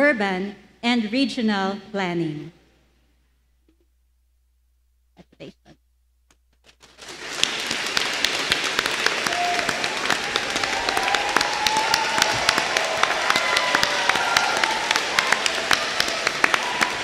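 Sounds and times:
crowd applauding: 6.9 - 17.0.

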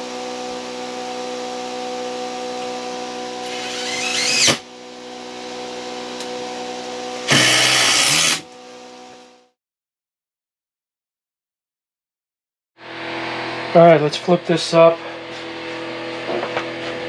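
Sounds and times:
cordless drill driving screws: 3.4 - 4.6, 7.2 - 8.5.

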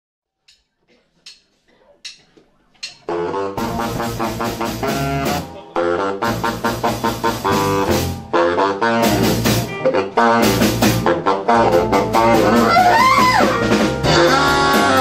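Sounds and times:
jump-blues band playing: 2.8 - 15.0
saxophone: 3.1 - 15.0.

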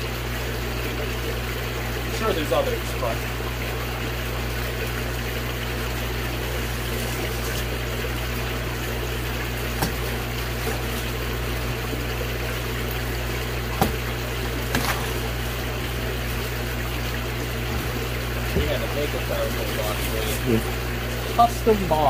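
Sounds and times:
low pump hum: 0.0 - 22.0
running water: 0.0 - 22.0.

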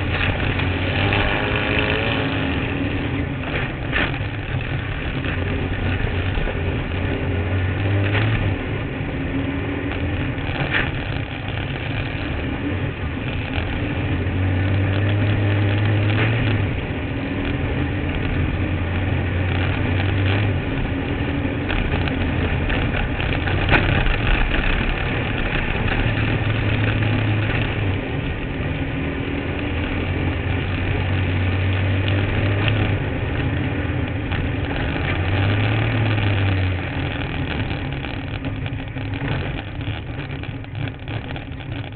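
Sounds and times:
kart engine accelerating: 0.0 - 41.9
chassis knocks and rattles: 21.7 - 27.9, 34.1 - 41.9.

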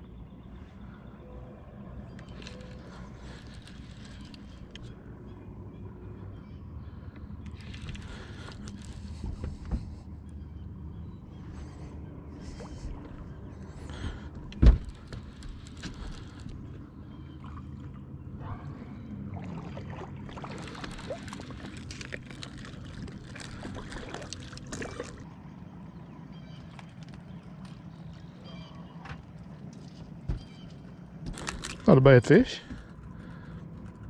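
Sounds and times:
boat motor humming: 0.0 - 34.0
fish splashing: 19.2 - 25.2.

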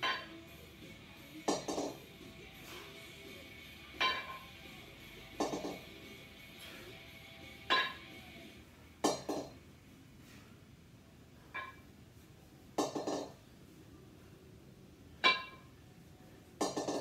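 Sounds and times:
kettlebells clinking: 0.0 - 0.6, 3.8 - 4.7, 5.4 - 8.3, 15.2 - 15.7.

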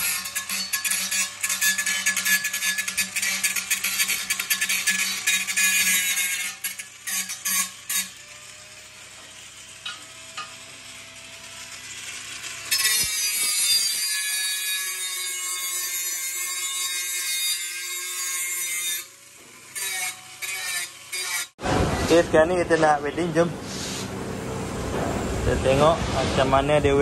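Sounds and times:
angle grinder grinding metal: 0.0 - 24.2.

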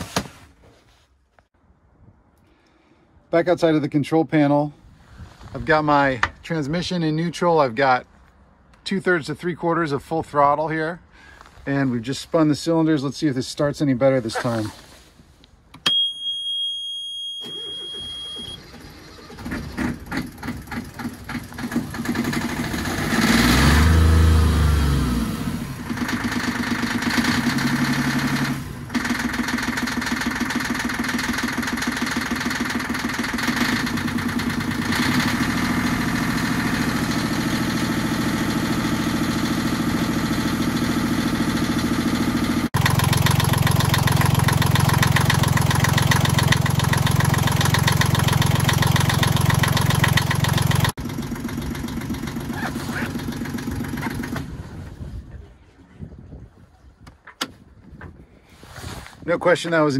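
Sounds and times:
starter cranking engine: 17.5 - 24.0, 25.6 - 54.6
diesel engine running: 17.5 - 54.8.

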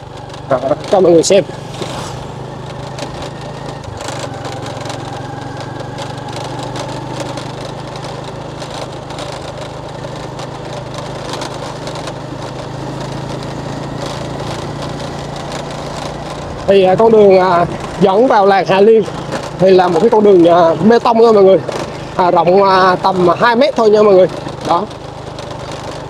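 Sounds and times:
small engine running: 0.0 - 26.0
wind or road noise hiss: 0.8 - 8.6.

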